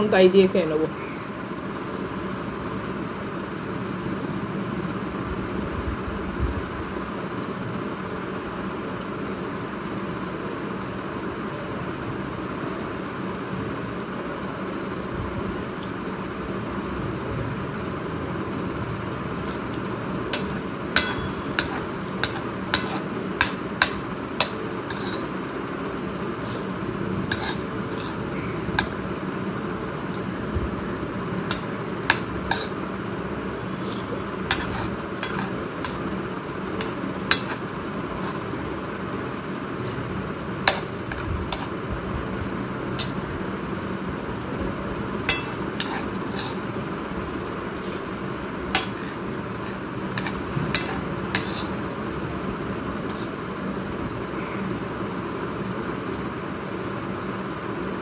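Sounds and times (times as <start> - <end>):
background hum: 0.0 - 58.0
spoon clinking on ceramic plate: 20.4 - 24.0, 33.8 - 36.0.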